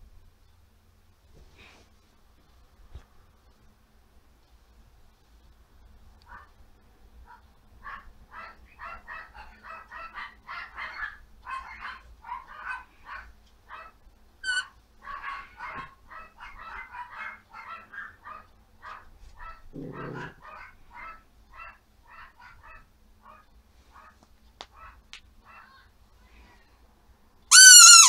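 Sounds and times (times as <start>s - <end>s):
dog squeak: 14.4s - 14.7s, 27.5s - 28.0s.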